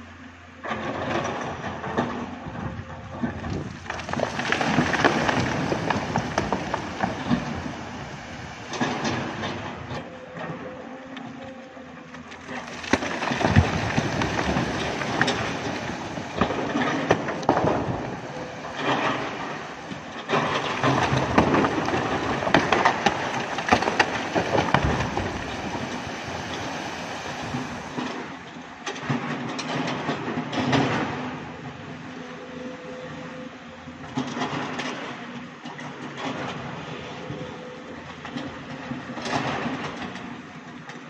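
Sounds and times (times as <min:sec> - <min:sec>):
rubble falling down rock face: 0:03.3 - 0:07.8, 0:12.5 - 0:26.2.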